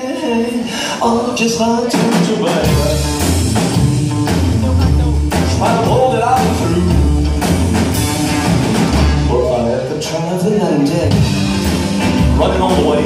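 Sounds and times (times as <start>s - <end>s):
man singing: 0.0s - 8.2s, 9.1s - 11.5s, 12.1s - 13.0s
live rock band playing: 0.0s - 13.0s
deep bass line: 2.6s - 13.0s.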